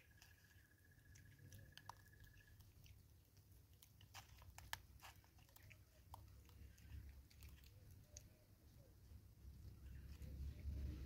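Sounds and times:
monkey crunching seeds: 0.0s - 8.4s
low steady rumble: 4.9s - 11.0s.

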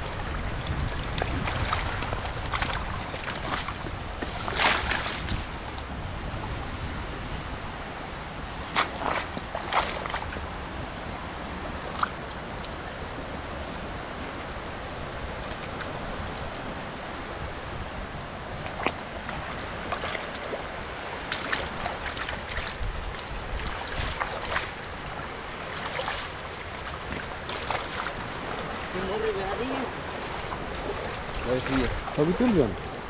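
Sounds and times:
water rushing: 0.0s - 33.0s
short splashes or knocks: 0.6s - 5.8s, 8.7s - 10.4s, 21.3s - 22.8s, 25.7s - 28.6s.

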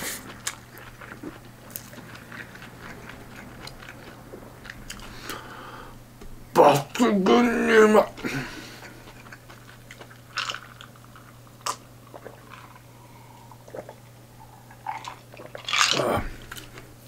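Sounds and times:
man gulping a drink: 8.2s - 16.8s.

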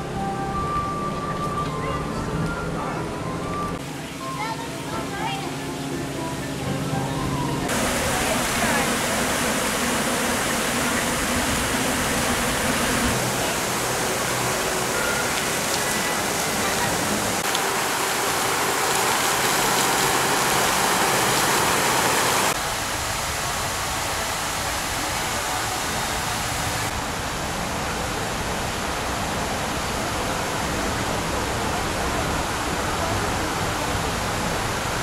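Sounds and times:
fountain water splashing into pool: 7.7s - 35.0s.

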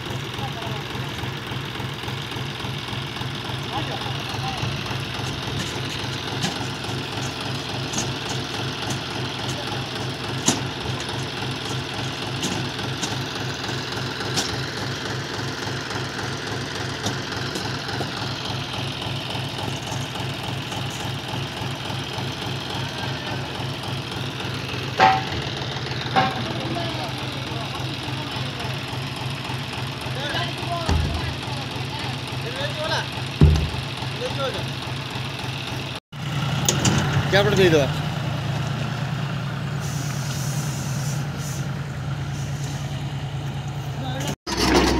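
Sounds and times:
diesel engine idling: 0.0s - 44.9s
sharp knocks: 30.9s - 31.4s, 33.4s - 34.0s.

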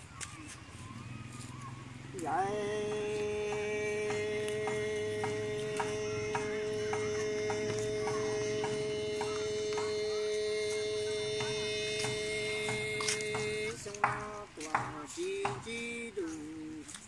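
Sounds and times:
faint ticking beat: 1.9s - 17.0s
two-note drone: 2.2s - 13.9s.

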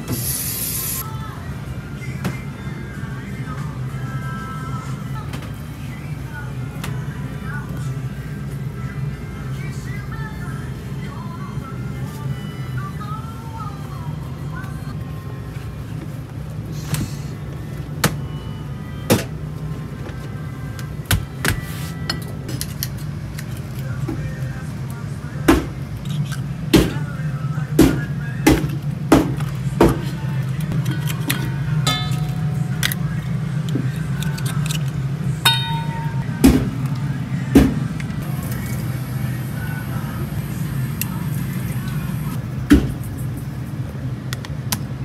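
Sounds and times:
steady low hum: 22.0s - 45.0s
clam shells clinking on metal bowl: 30.8s - 33.0s.

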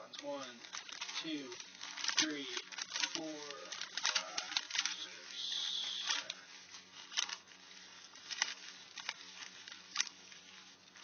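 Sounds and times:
light paper rustling: 0.0s - 11.0s
paper flicks: 0.2s - 11.0s.

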